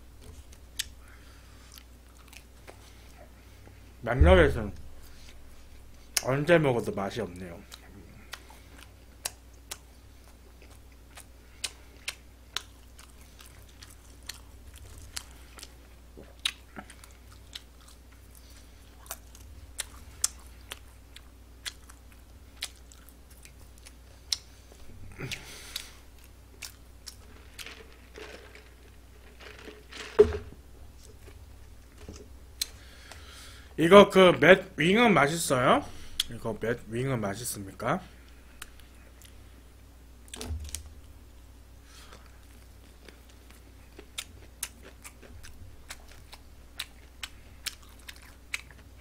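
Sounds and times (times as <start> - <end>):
person chewing crunchy food: 0.2 - 3.8, 7.6 - 33.6, 41.9 - 49.0.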